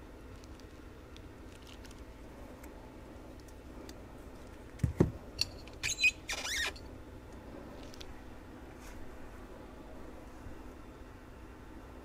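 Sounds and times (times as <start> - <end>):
high squeaks and clicks: 5.7 - 6.9.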